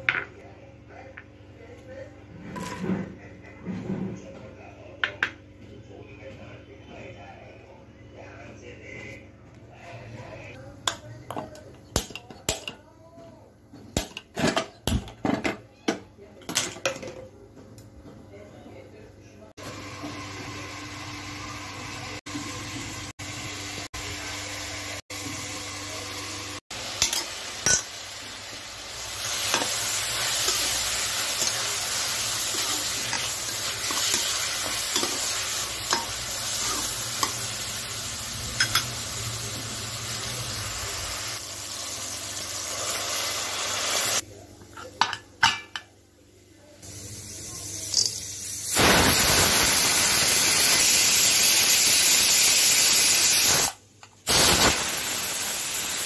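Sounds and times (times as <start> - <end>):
food sizzling in a frying pan: 19.6 - 44.2, 46.8 - 56.0
loud hiss: 48.7 - 56.0.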